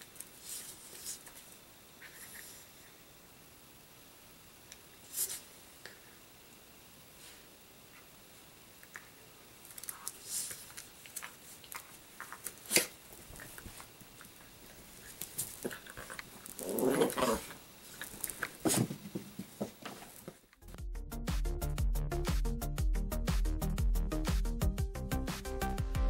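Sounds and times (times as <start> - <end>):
puppy growling: 15.6 - 17.6.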